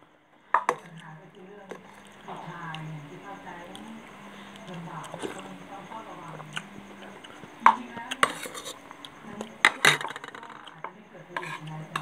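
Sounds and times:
spoons clinking on plates: 7.6s - 12.0s.

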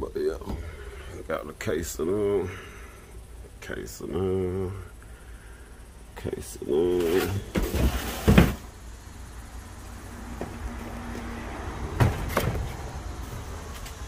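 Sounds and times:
boxes rustling: 6.9s - 8.7s
boxes knocking down: 7.0s - 8.7s.

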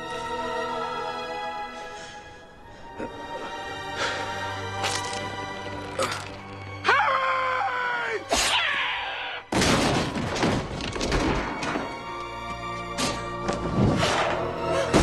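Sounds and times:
dramatic film score: 0.0s - 15.0s
crash of shattering debris: 9.5s - 11.9s.

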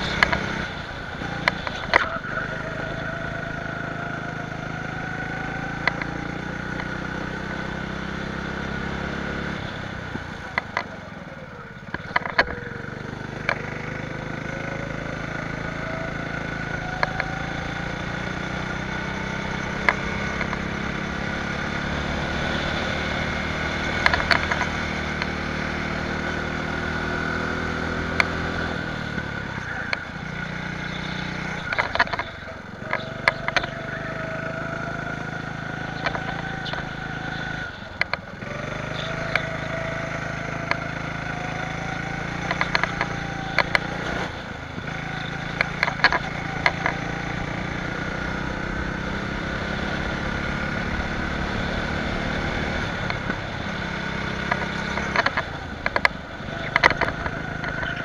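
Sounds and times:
go-kart engine running hard: 0.0s - 58.0s
sharp clicks: 5.8s - 7.0s, 23.9s - 25.4s, 31.3s - 33.8s, 42.3s - 44.0s, 54.4s - 58.0s.

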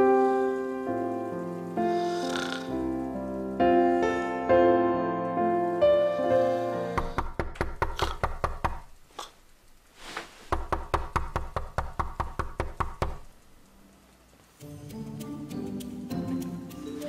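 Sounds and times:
fast knocking on a door: 7.0s - 8.9s, 10.5s - 13.3s.

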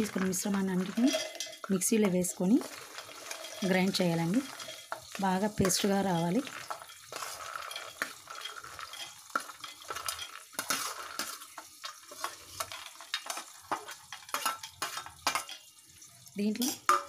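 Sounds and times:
soft frying sizzle: 0.0s - 17.0s
steel spoon clinking on steel: 0.5s - 11.4s, 12.2s - 15.7s.

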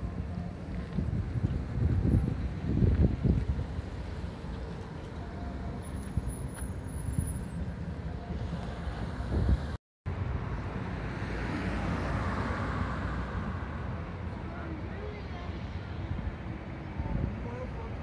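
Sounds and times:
passing vehicle: 0.0s - 18.0s
wind rumble on microphone: 0.1s - 9.8s, 15.8s - 18.0s.

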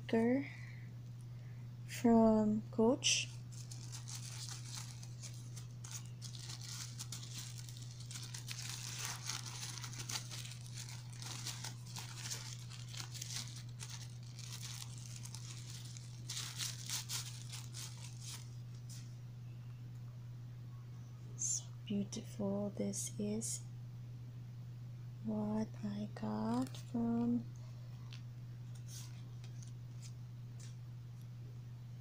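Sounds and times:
steady low hum: 0.0s - 32.0s
tissue paper crinkling and tearing: 3.3s - 19.0s, 26.4s - 27.4s, 28.7s - 30.7s.

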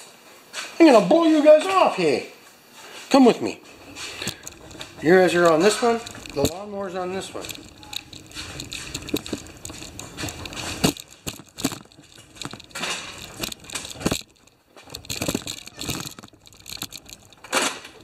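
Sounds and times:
chair casters rattling on concrete: 3.7s - 18.0s.

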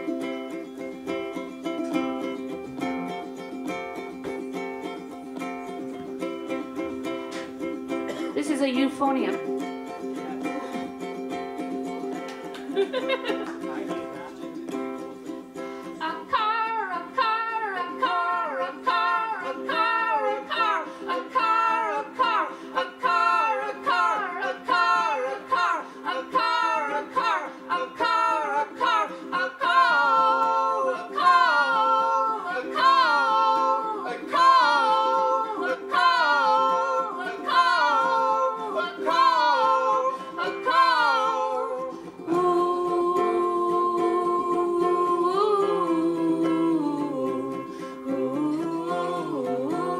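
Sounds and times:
strummed ukulele: 0.0s - 49.9s
voices singing: 15.8s - 49.9s.

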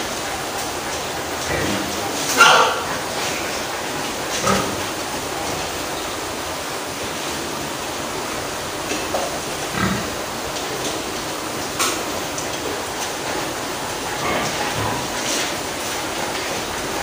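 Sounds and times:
pig calls: 1.4s - 5.4s, 9.6s - 10.3s, 13.9s - 16.6s.

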